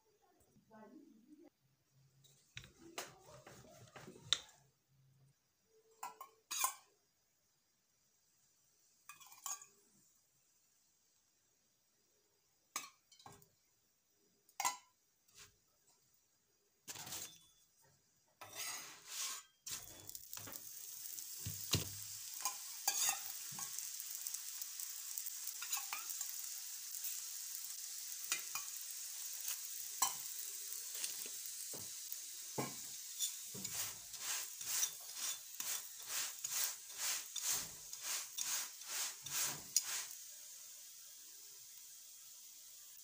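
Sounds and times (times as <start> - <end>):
flatbread sizzling on a hot pan: 2.2 - 4.7, 5.4 - 43.0
scrapes and taps: 2.3 - 4.5.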